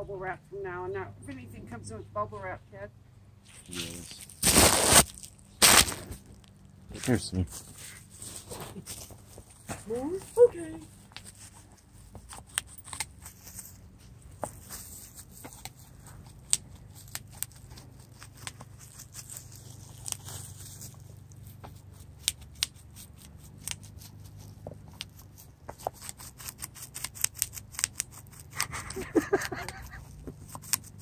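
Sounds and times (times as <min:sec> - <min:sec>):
bubble wrap popping: 0:03.5 - 0:06.6, 0:14.4 - 0:24.1
plastic crinkling: 0:03.5 - 0:13.8.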